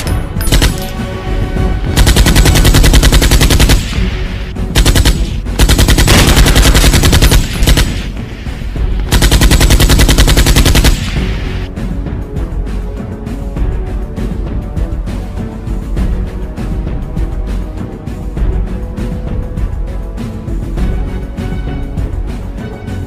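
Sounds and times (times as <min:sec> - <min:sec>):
machine-gun fire: 0:01.9 - 0:04.0, 0:04.7 - 0:08.2, 0:09.1 - 0:11.2.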